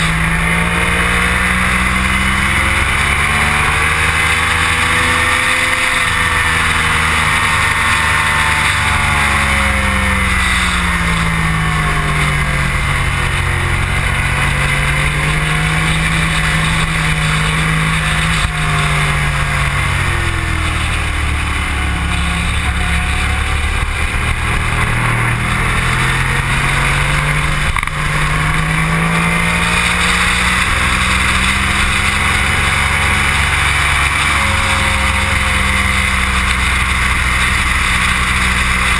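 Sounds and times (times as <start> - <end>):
motorcycle engine racing: 0.0 - 38.9.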